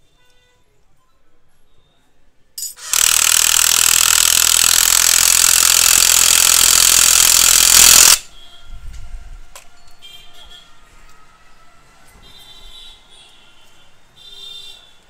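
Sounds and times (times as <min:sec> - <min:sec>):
impact wrench running: 0:02.6 - 0:08.3.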